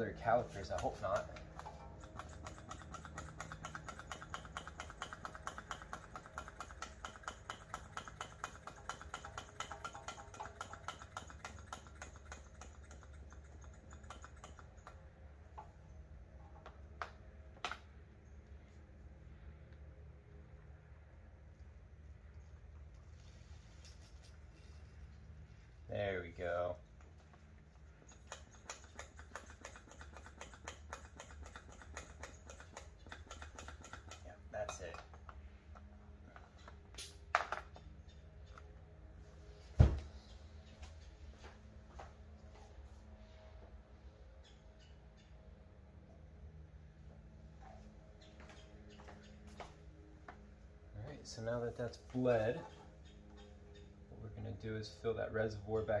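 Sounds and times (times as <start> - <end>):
brake bleeder pump clicking: 0.6 - 15.1.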